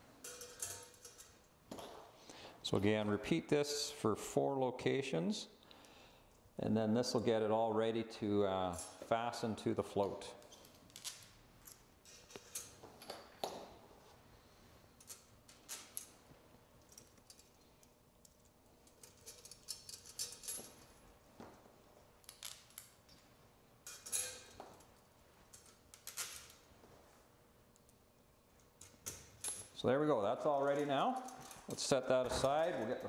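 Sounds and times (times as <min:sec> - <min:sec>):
metal bolts and nuts clinking: 0:00.2 - 0:02.0, 0:10.5 - 0:13.4, 0:15.0 - 0:16.2, 0:16.8 - 0:21.0, 0:22.2 - 0:26.6, 0:28.6 - 0:29.8, 0:30.4 - 0:33.0.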